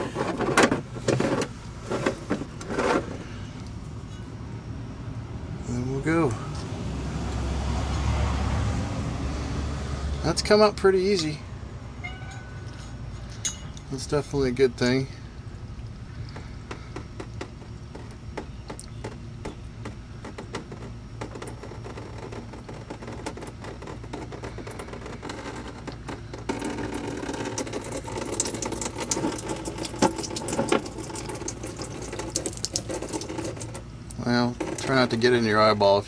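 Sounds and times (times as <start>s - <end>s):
fuel dripping into bucket: 15.0s - 36.0s
fuel splashing: 15.0s - 36.0s.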